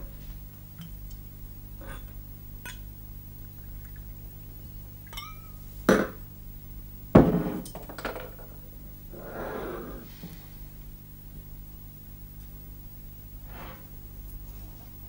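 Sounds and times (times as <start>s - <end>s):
glass clinking: 5.0s - 5.6s
knocks on bar counter: 7.2s - 8.4s.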